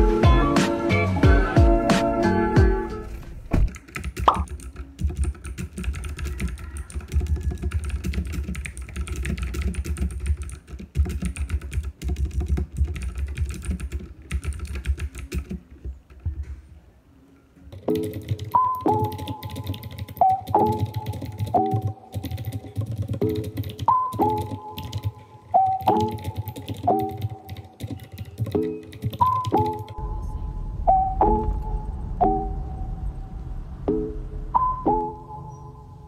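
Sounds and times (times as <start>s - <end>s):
music: 0.0s - 3.6s, 17.2s - 32.6s
fast keyboard typing: 3.7s - 16.4s, 17.7s - 30.0s.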